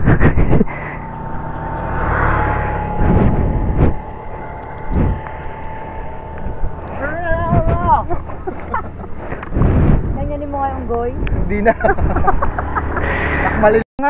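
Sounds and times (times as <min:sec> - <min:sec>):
wind on microphone: 0:00.0 - 0:13.0
motorcycle engine running: 0:00.0 - 0:13.8
thin steady whine: 0:00.0 - 0:13.8.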